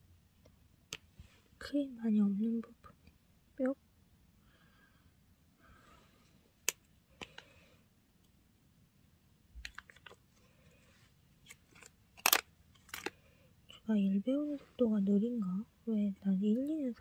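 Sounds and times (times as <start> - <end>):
small plastic parts clicking: 11.4 - 13.2.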